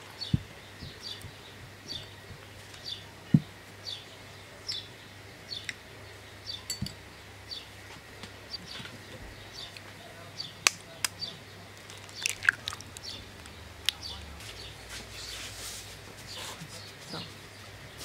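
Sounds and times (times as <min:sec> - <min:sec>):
bird chirping: 0:11.2 - 0:14.8.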